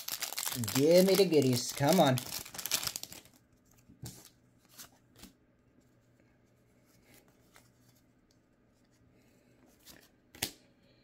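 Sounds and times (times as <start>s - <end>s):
trading cards rustling: 0.0s - 5.3s.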